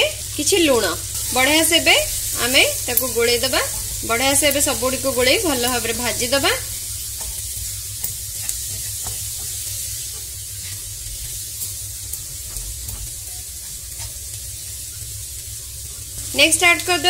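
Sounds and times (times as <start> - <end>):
food sizzling in oil: 0.0 - 17.0
spatula scraping and tapping pan: 7.1 - 15.1.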